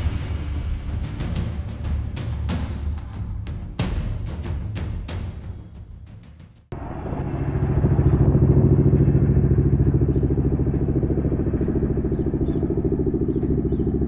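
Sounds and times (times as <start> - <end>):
helicopter rotor blades beating: 6.7 - 14.0
turbine engines: 6.7 - 14.0.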